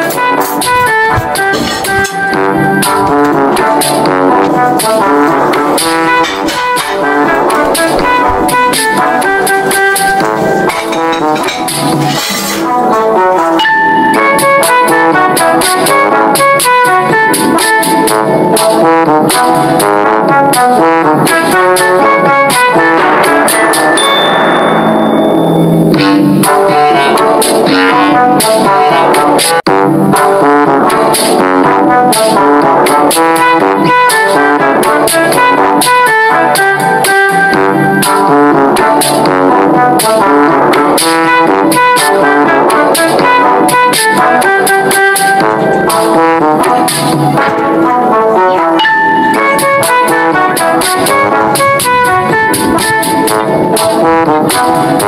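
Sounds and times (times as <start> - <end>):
music with short pitched notes: 0.0 - 19.8, 32.1 - 55.0
brass melody over a beat: 0.0 - 55.0.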